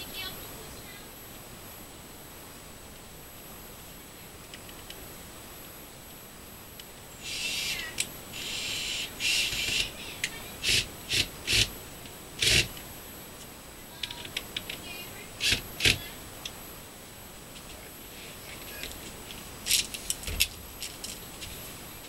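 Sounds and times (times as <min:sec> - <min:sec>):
cordless drill driving screws: 0:07.2 - 0:09.9, 0:10.6 - 0:11.7, 0:12.4 - 0:12.8, 0:15.4 - 0:16.0.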